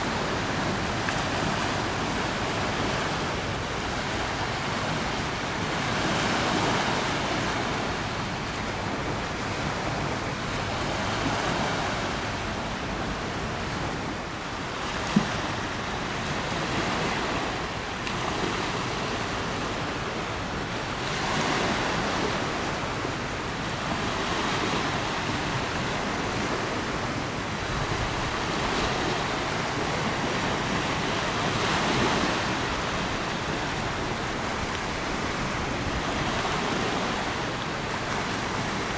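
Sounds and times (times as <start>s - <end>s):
river waves washing: 0.0s - 38.9s
wind: 0.0s - 38.9s.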